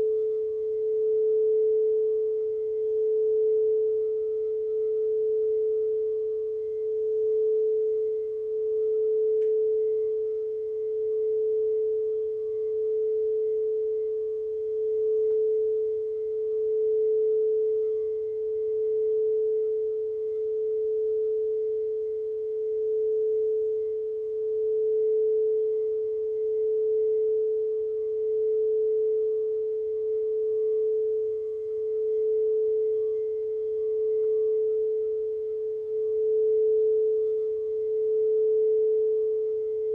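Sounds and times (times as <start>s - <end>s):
singing bowl ringing: 30.2s - 39.9s.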